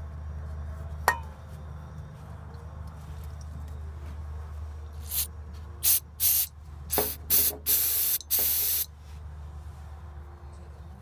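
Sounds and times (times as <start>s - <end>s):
aerosol spray hissing: 5.0s - 8.9s.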